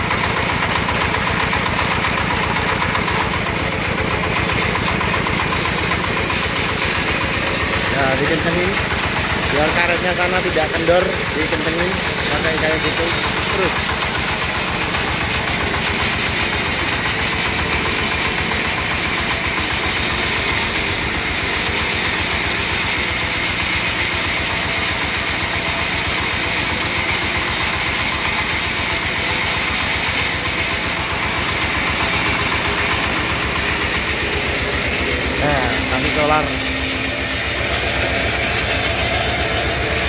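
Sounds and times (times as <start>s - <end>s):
diesel engine idling: 0.0s - 40.0s.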